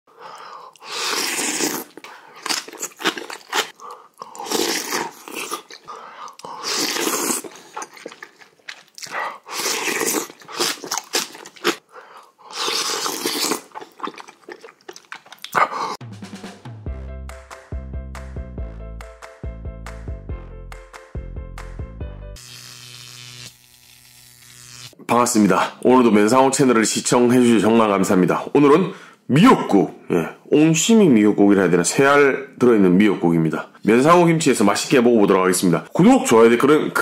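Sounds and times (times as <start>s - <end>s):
person slurping soup: 0.6s - 16.0s
chewing and crunching: 1.5s - 11.8s, 12.5s - 15.9s.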